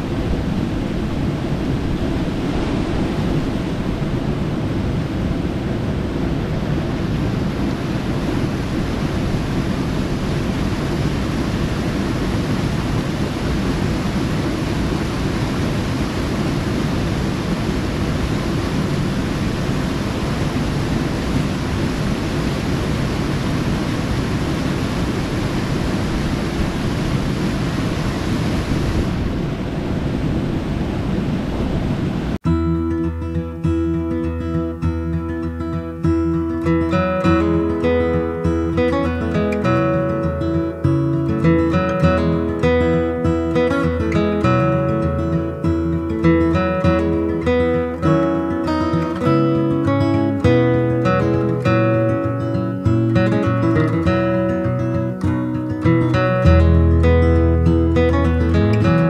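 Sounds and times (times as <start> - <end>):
water rushing over rocks: 0.0 - 29.5.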